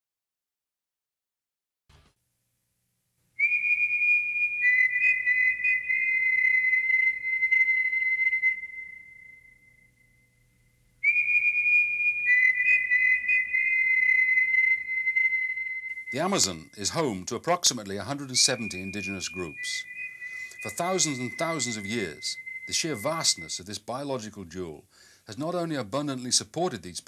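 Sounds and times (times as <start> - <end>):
high steady whistle-like tones: 3.4 - 24.8.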